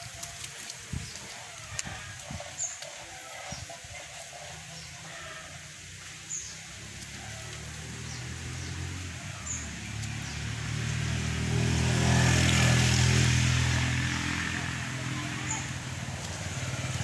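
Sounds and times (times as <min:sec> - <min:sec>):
vehicle engine approaching: 0:00.0 - 0:17.0.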